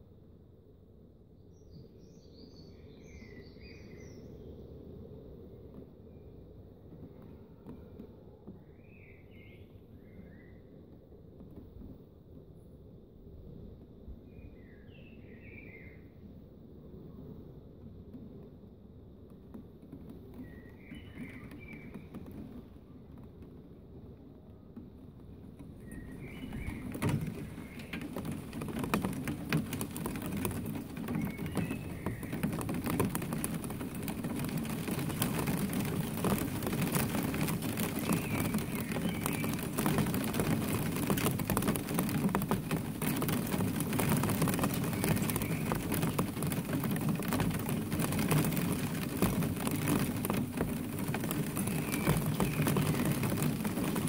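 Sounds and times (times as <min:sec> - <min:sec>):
rain falling: 0:19.3 - 0:54.0.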